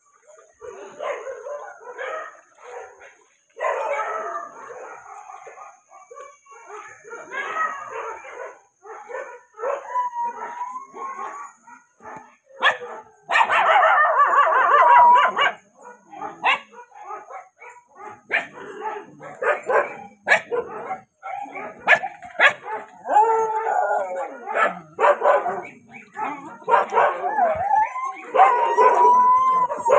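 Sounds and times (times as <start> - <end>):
dogs barking and yelping: 0.1 - 29.9
dog howling: 9.5 - 11.6, 13.6 - 16.2, 22.6 - 29.9.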